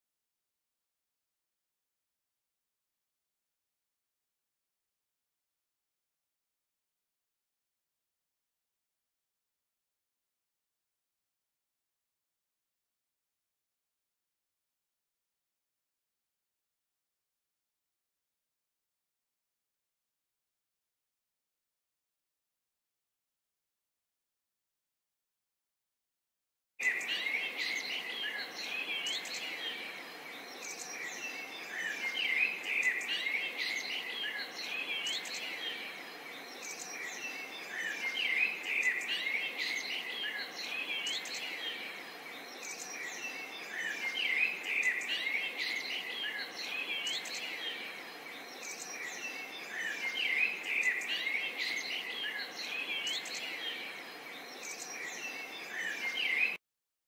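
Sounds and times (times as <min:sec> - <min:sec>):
songbirds chirping: 0:26.8 - 0:56.6.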